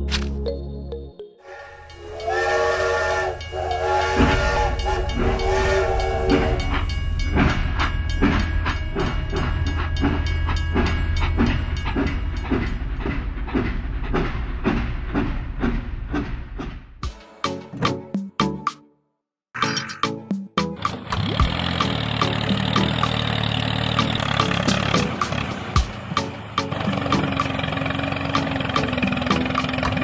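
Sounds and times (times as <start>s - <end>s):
toy train whistle: 1.4s - 6.9s.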